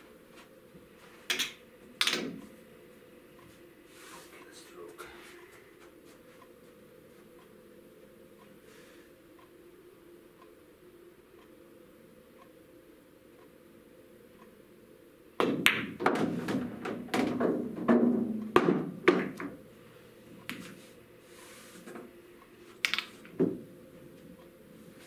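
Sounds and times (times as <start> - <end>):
balls knocking and rolling: 1.2 - 2.5, 15.4 - 19.6, 20.4 - 20.8, 22.8 - 24.3
pool balls clicking: 1.2 - 2.5, 15.4 - 19.7, 20.4 - 20.8, 22.7 - 24.3
cue tip striking ball: 15.4 - 19.6.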